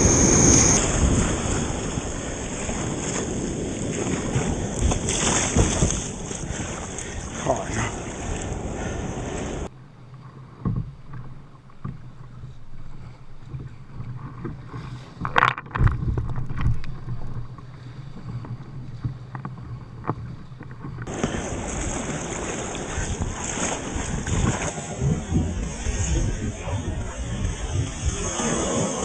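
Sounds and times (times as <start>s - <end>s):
water slapping kayak hull: 0.0s - 9.7s, 10.6s - 29.0s
wave splashing: 0.0s - 9.7s, 21.1s - 29.0s
wind on microphone: 0.0s - 9.7s, 13.2s - 29.0s.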